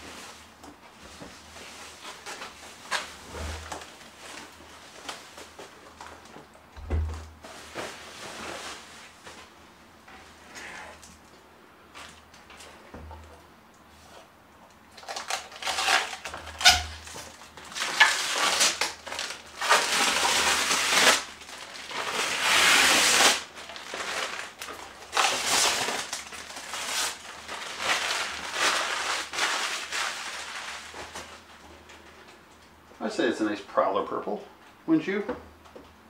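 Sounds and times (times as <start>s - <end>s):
plastic film crinkling: 15.0s - 31.6s.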